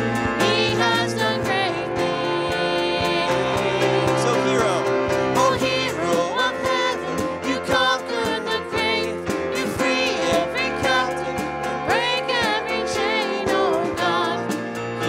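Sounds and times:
steady beat: 0.0 - 14.7
keyboard: 0.0 - 15.0
man and woman singing together: 0.4 - 14.6.

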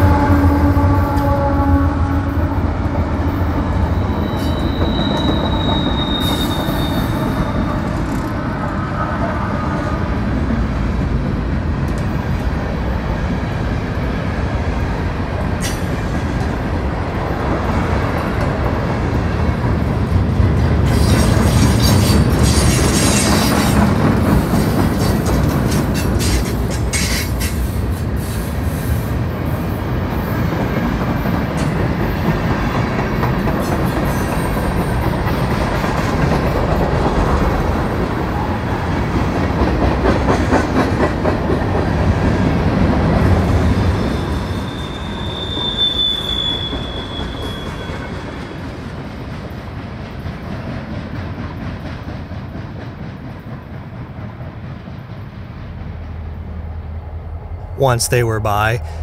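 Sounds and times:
train wheels rumbling over rails: 0.0 - 45.8, 46.5 - 57.7
train cars rattling and clacking: 2.6 - 8.8, 10.5 - 56.8
high wheel squeal: 3.9 - 8.2, 43.8 - 48.8.

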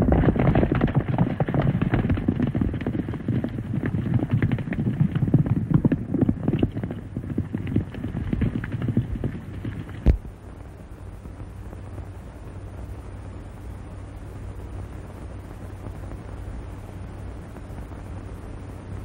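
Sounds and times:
horses galloping on dirt: 0.0 - 10.2.

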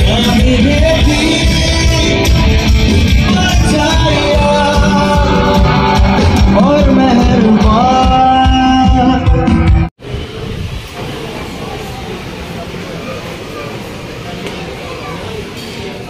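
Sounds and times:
live band playing: 0.0 - 9.9
person singing: 0.0 - 9.9.

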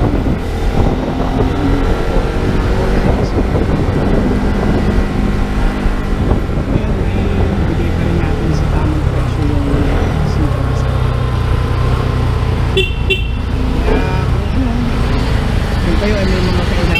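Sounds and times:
wind noise on microphone: 0.0 - 11.5
motorcycle engine running: 0.0 - 16.9.

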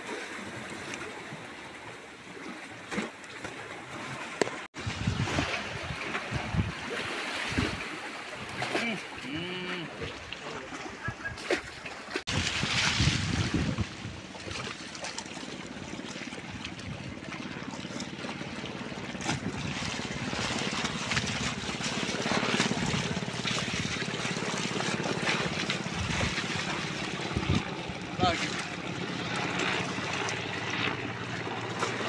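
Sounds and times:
water sloshing from swimming: 0.0 - 32.0
person splashing into water: 2.4 - 15.3.

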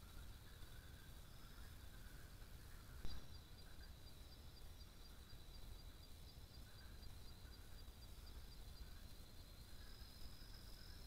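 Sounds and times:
night insects trilling: 0.0 - 11.0.

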